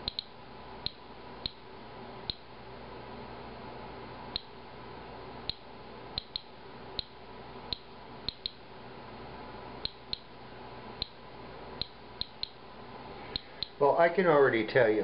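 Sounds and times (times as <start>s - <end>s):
geiger counter clicking: 0.0s - 1.6s, 2.2s - 2.5s, 4.3s - 4.5s, 5.4s - 8.6s, 9.8s - 10.3s, 11.0s - 11.2s, 11.8s - 12.6s, 13.3s - 13.8s.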